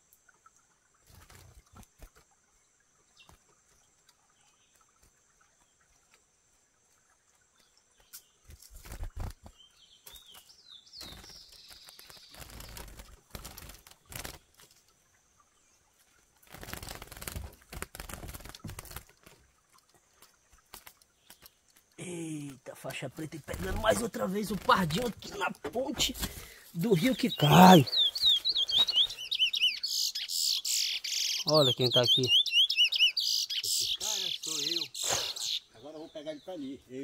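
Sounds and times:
birds fluttering in wire cage: 0:01.0 - 0:02.4, 0:08.4 - 0:10.4, 0:11.0 - 0:14.9, 0:16.3 - 0:21.8, 0:23.4 - 0:29.7
short rising bird chirps: 0:27.1 - 0:35.7.

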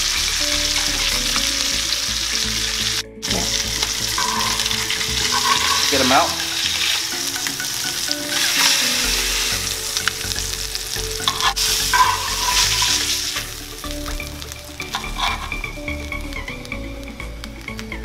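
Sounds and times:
fish sizzling in a skillet: 0:00.0 - 0:18.0
metal tongs clicking on pan: 0:04.2 - 0:07.0, 0:11.2 - 0:13.0.

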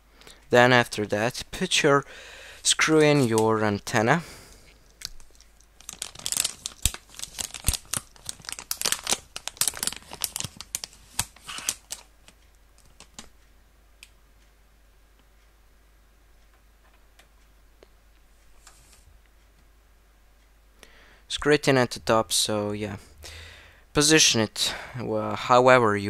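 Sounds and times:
antenna rustling and clicking: 0:04.5 - 0:13.4.

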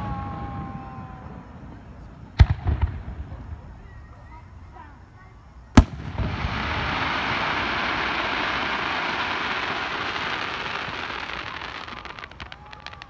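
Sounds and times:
hiss of burning firework stars: 0:05.8 - 0:13.0.

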